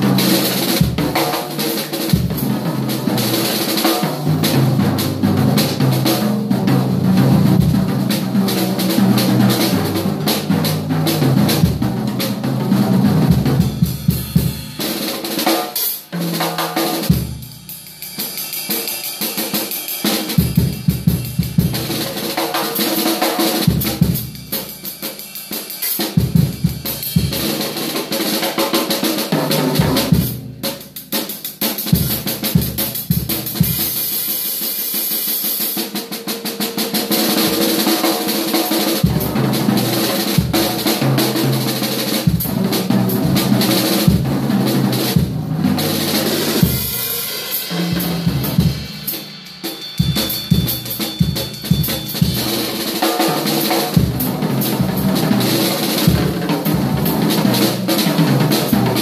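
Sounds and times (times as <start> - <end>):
drum solo: 0.0 - 59.0
cymbal crashes: 23.6 - 28.4, 44.9 - 55.0.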